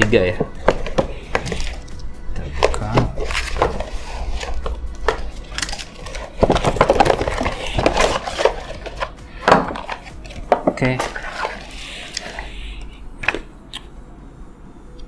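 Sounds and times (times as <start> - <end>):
cardboard packaging being opened: 0.6 - 12.5.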